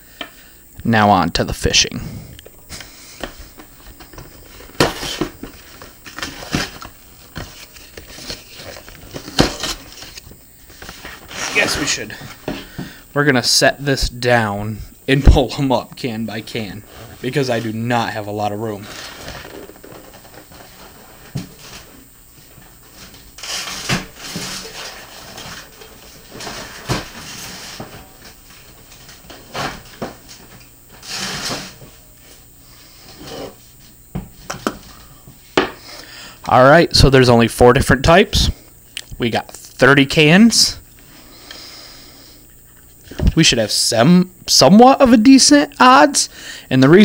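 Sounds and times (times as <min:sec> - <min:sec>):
cardboard rustling: 0:03.2 - 0:12.5
cardboard tearing and crackling: 0:04.5 - 0:10.2, 0:23.4 - 0:27.8.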